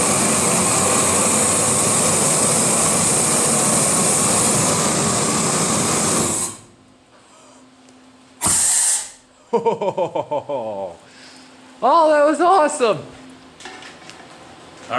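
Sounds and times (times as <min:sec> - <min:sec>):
heating torch roaring: 0:00.0 - 0:07.1, 0:08.4 - 0:09.3.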